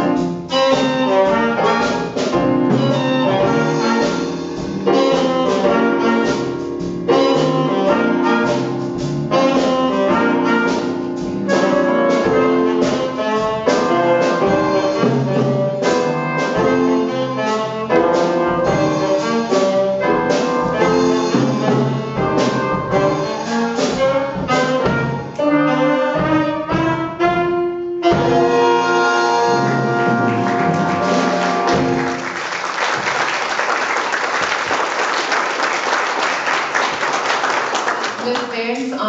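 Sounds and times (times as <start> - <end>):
band playing jazzy tune: 0.0 - 39.0
audience applause: 29.9 - 38.6.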